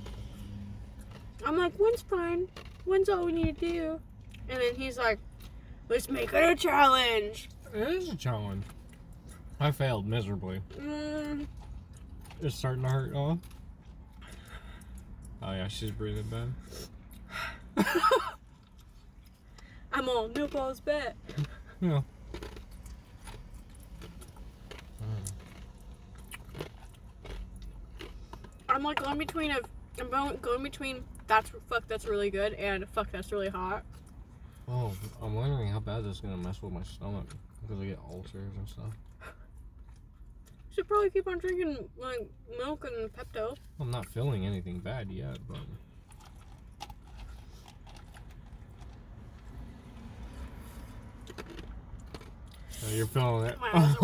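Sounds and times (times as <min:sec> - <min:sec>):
low steady rumble: 0:00.0 - 0:54.0
person chewing with mouth smacks: 0:21.2 - 0:28.7, 0:50.4 - 0:52.8.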